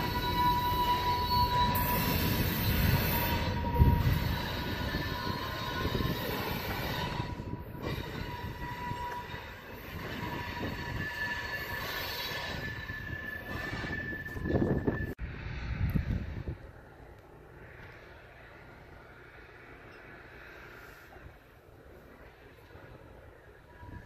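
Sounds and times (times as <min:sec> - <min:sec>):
train wheels squealing on rail: 0:00.0 - 0:16.6, 0:22.1 - 0:24.0.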